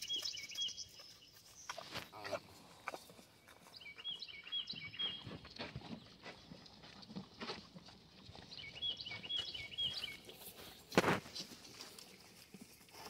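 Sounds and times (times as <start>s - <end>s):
songbird chirping: 0.0s - 12.9s
calves stepping on hay and mud: 0.0s - 13.0s.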